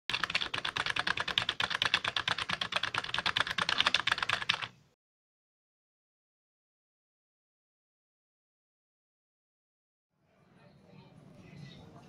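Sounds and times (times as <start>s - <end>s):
computer keyboard typing: 0.1s - 4.7s.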